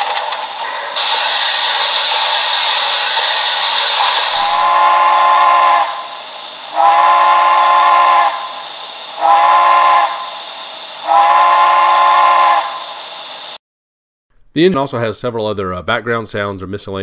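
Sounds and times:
steady steam hiss: 0:00.0 - 0:13.6
steam locomotive whistle blasts: 0:01.0 - 0:13.6.

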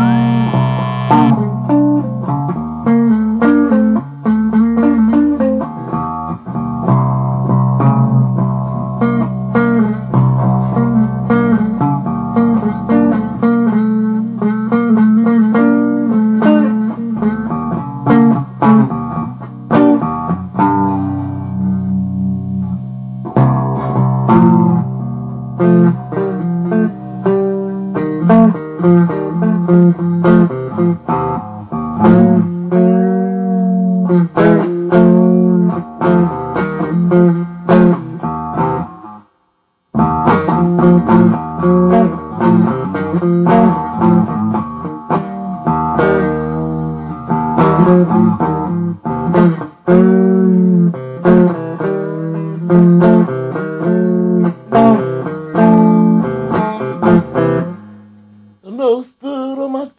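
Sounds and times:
low bass notes: 0:00.0 - 0:01.9
plucked blues guitar notes: 0:00.0 - 0:39.2, 0:39.9 - 0:59.9.

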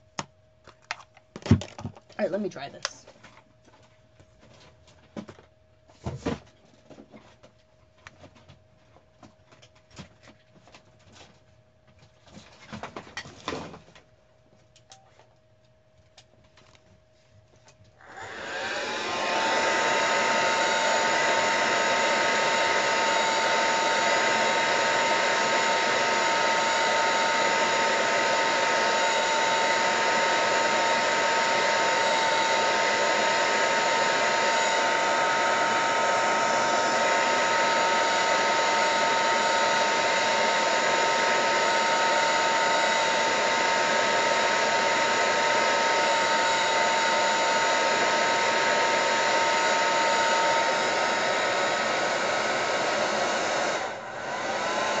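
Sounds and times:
hand dryer motor whining: 0:18.0 - 0:55.0.

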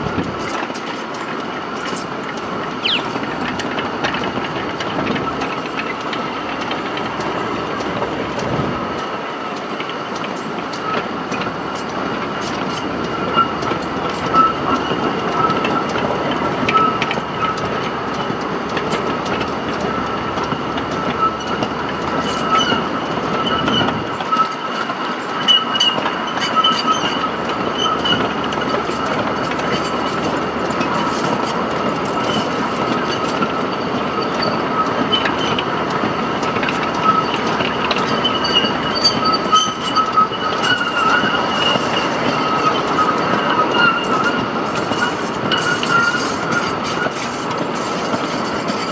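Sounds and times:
train rumble: 0:00.0 - 0:48.9
high-pitched wheel squeal: 0:12.5 - 0:15.9, 0:16.6 - 0:17.7, 0:20.9 - 0:35.8, 0:36.5 - 0:48.9.

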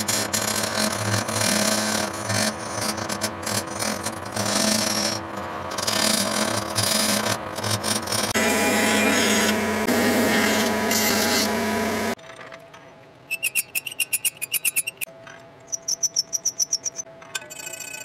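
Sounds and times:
belt grinder grinding metal: 0:00.0 - 0:12.2
hand file rasping metal: 0:00.0 - 0:12.2
high ringing squeal from plate: 0:08.4 - 0:11.8.

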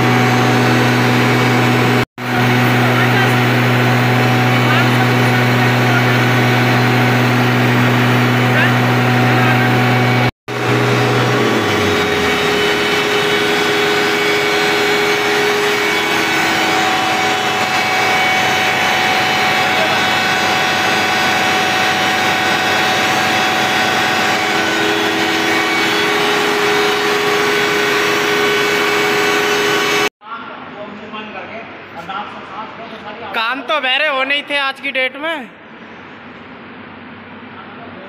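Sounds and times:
diesel generator drone: 0:00.0 - 0:30.1
steady whining tones: 0:00.0 - 0:30.1.

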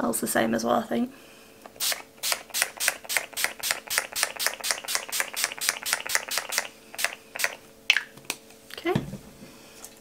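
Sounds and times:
spray bottle hissing: 0:01.8 - 0:07.6.

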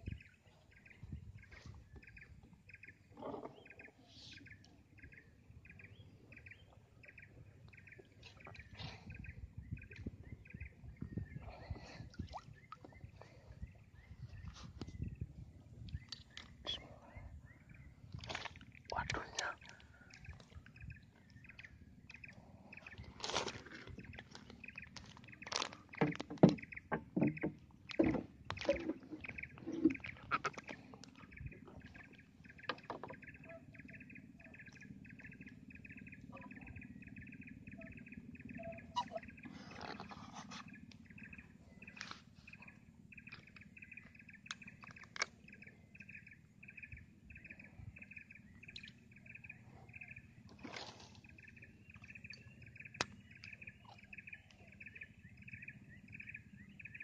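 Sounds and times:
knocks against wooden boat: 0:26.0 - 0:29.0
pulsing animal chirp: 0:33.3 - 0:39.6.

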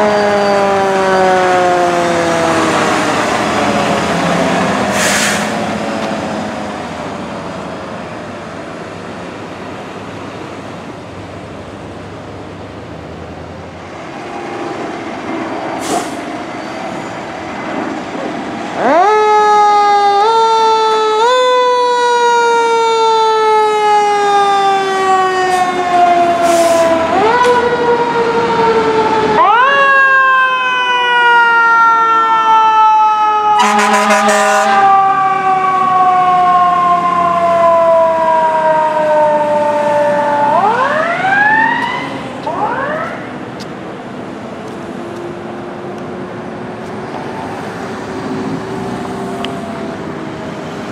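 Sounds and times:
siren whoops: 0:00.0 - 0:04.9, 0:18.8 - 0:43.4
fire engine siren wailing: 0:00.0 - 0:50.9
air horn blast: 0:33.6 - 0:35.0.

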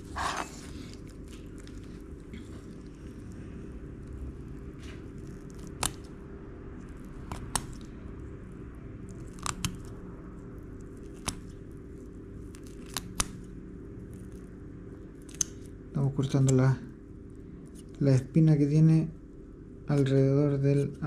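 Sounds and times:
blade cracking fish bones: 0:05.2 - 0:06.1, 0:09.1 - 0:10.0, 0:12.6 - 0:13.4.

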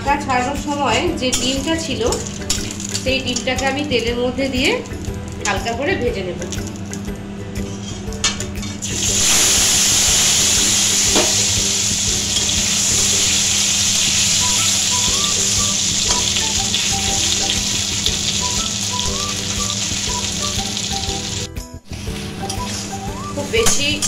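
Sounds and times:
roe sizzling in hot oil: 0:08.8 - 0:21.5.

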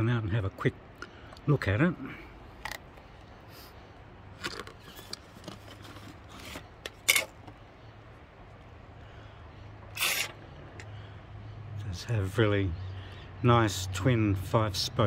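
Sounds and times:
plastic rustle: 0:04.4 - 0:07.4.

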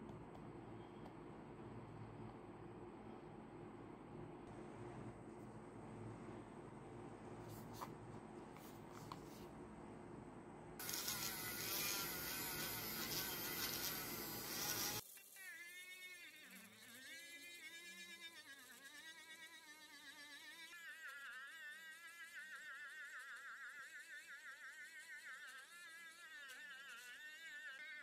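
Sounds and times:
polishing bit hissing: 0:10.8 - 0:15.0
rotary tool motor whine: 0:10.8 - 0:18.1.

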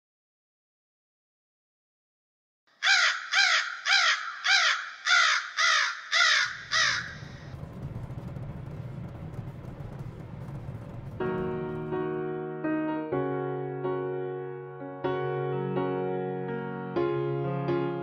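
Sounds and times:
crow cawing: 0:02.8 - 0:07.5
low steady rumble: 0:06.6 - 0:12.5.

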